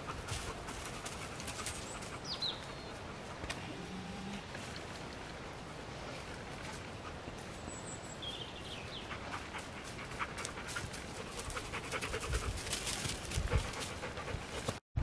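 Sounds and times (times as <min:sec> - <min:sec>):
dog panting: 0:09.0 - 0:14.8.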